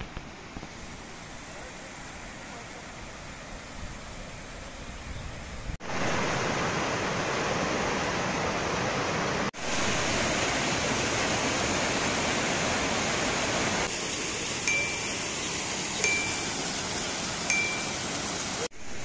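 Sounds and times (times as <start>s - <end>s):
river rushing over cascades: 5.8s - 19.0s
short clear chime: 14.7s - 15.2s, 16.0s - 16.6s, 17.5s - 18.1s.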